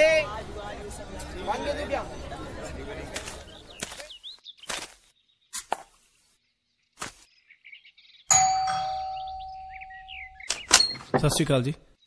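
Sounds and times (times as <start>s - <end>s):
doorbell ding: 8.3s - 10.2s.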